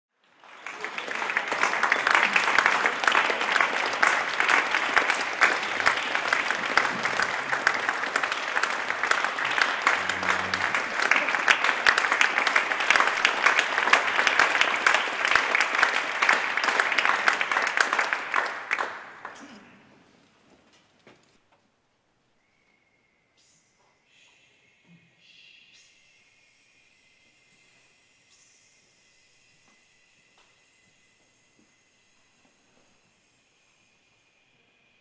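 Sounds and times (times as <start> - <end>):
audience applauding: 0.2 - 19.7.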